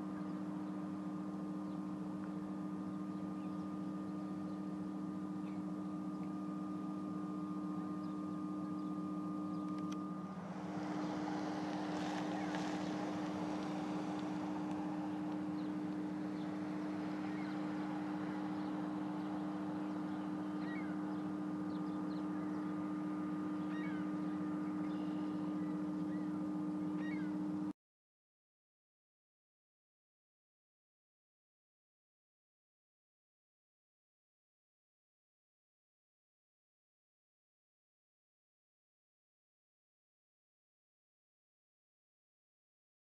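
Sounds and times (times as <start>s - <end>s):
faint bird calls: 0.0s - 27.7s
machinery drone: 0.0s - 27.7s.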